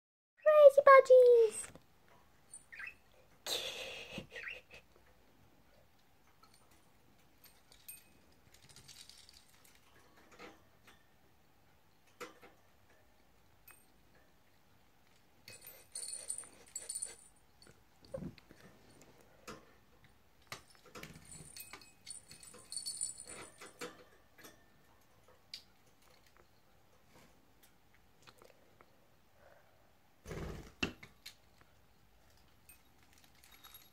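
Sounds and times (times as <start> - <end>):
toy bell jingling: 15.5 - 17.4, 21.3 - 23.5.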